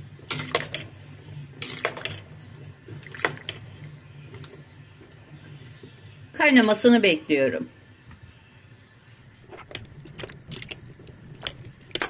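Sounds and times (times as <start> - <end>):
water sloshing in a pot: 0.1 - 6.2, 9.3 - 12.0.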